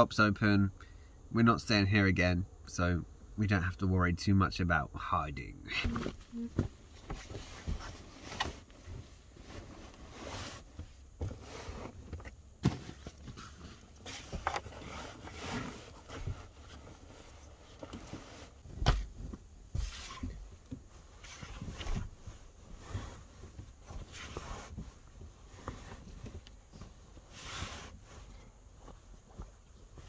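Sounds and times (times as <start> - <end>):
rustling bedding fabric: 5.9 - 12.1, 12.7 - 30.0.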